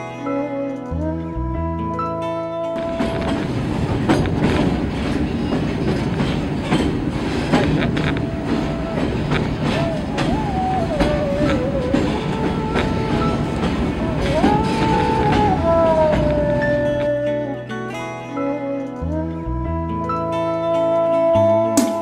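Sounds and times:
train wheels clickety-clack: 2.9 - 17.2
wavering high tone: 7.7 - 21.7.

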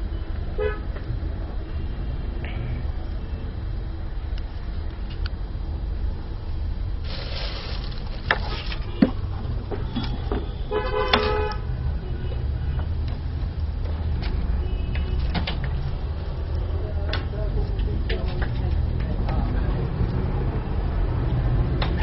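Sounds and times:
workshop machinery humming: 4.2 - 11.6.

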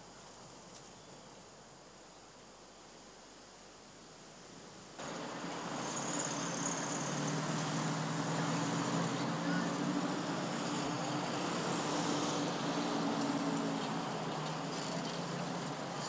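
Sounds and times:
car engines humming: 5.0 - 16.0
tyres on cobblestones: 5.0 - 16.0.

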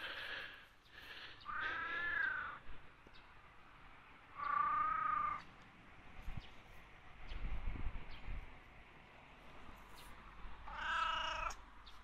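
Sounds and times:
cat meowing: 1.5 - 2.6, 10.6 - 11.6.

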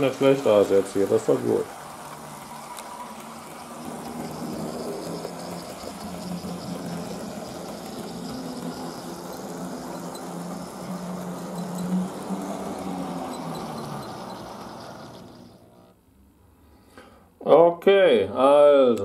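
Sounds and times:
electric motor humming: 0.0 - 15.8
wheels rolling on rails: 0.0 - 15.9.

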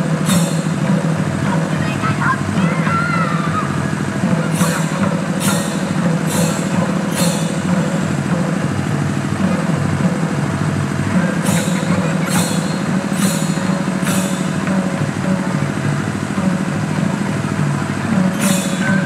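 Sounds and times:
dense rapid drumming: 0.0 - 19.0
sharp bright strikes: 4.2 - 8.8, 11.3 - 17.4.

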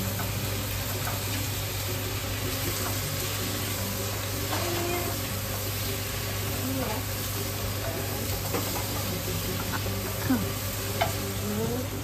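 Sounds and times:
food sizzling in a wok: 0.0 - 12.0
metal utensil clicking on pan: 7.8 - 9.8, 10.9 - 11.3.

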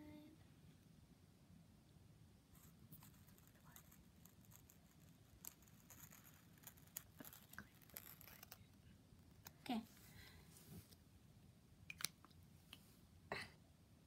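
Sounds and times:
marker scratching on felt: 2.6 - 8.7.

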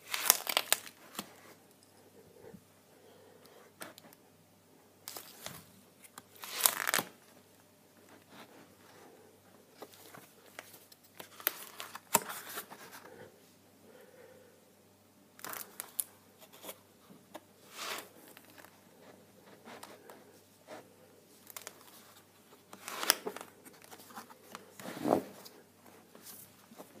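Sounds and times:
paper pages rustling: 0.0 - 1.4, 5.1 - 7.2, 9.8 - 13.1, 21.4 - 27.0.

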